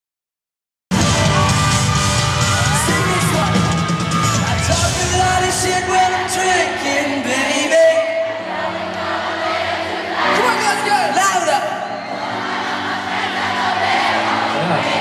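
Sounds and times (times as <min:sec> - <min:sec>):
fans screaming and whooping: 0:00.9 - 0:06.4, 0:08.8 - 0:15.0
pop-rock band playing live: 0:00.9 - 0:08.3
person singing into microphone: 0:04.6 - 0:09.0.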